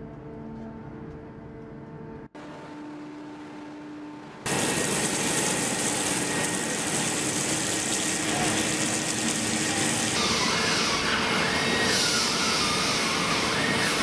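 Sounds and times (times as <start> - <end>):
hiss of cutting: 4.5 - 14.0
lathe turning steel: 4.5 - 14.0.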